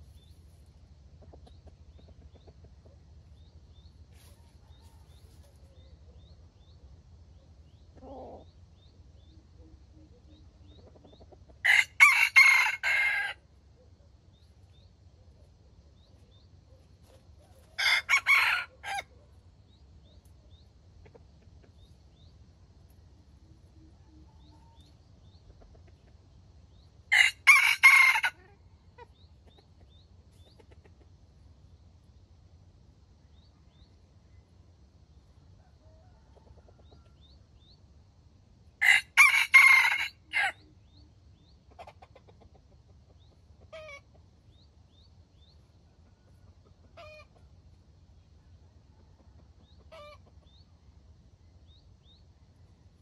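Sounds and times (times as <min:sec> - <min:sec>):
small birds chirping: 0:00.0 - 0:11.7, 0:13.7 - 0:27.1, 0:28.6 - 0:39.0, 0:39.6 - 0:52.5
rooster crowing: 0:11.6 - 0:13.4, 0:17.6 - 0:19.1, 0:27.1 - 0:28.5, 0:35.7 - 0:37.3, 0:38.8 - 0:40.6.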